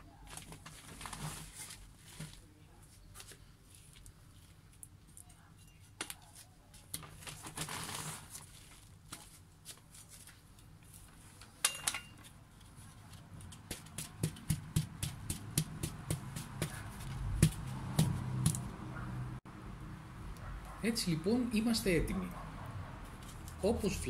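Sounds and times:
hands rustling potting soil: 0.1s - 11.6s, 12.2s - 18.7s, 23.1s - 24.0s.

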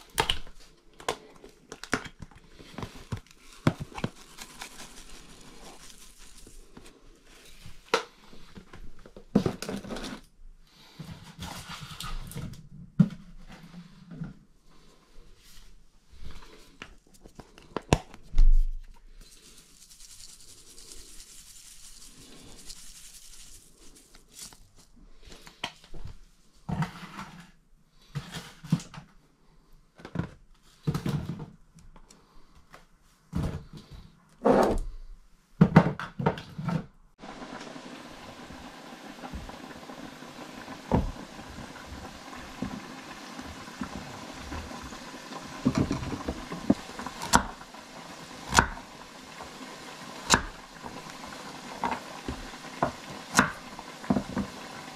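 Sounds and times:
dried herbs pouring: 2.6s - 7.7s, 19.1s - 25.0s, 37.2s - 52.9s
spice jars shaken and tapped: 19.2s - 24.6s.

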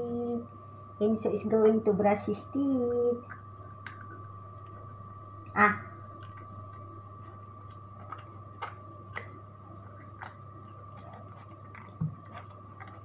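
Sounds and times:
low hum: 0.0s - 13.0s
dog chewing: 2.8s - 5.4s, 6.0s - 13.0s.

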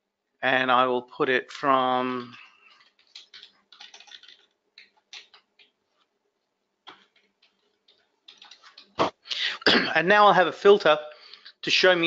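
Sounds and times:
faint keyboard typing: 2.1s - 9.2s.

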